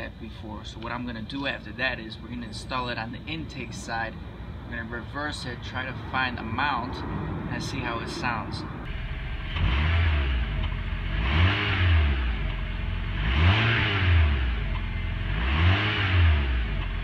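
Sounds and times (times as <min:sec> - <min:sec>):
car engine revving: 0:06.4 - 0:17.0.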